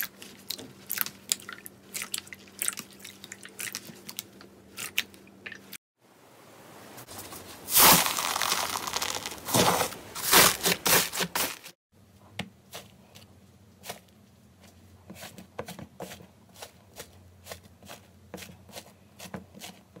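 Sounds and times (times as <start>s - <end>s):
sand crust crunching: 7.1s - 11.8s
slime crackling and popping: 7.7s - 9.5s.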